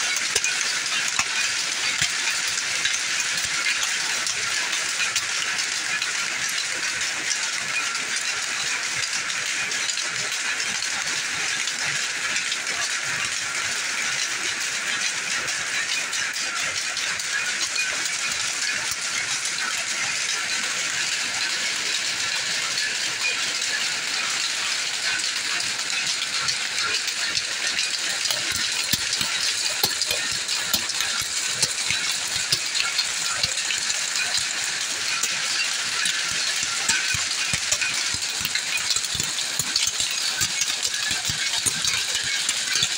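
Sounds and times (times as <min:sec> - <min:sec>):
sharp loom clacks: 0:00.0 - 0:42.9
power looms clattering: 0:23.5 - 0:42.9.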